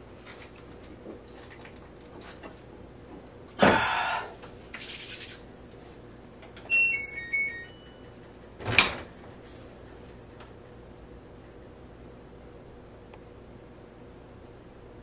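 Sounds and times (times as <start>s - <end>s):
hands rubbing: 4.8s - 5.4s
electronic beeps tune: 6.7s - 8.0s.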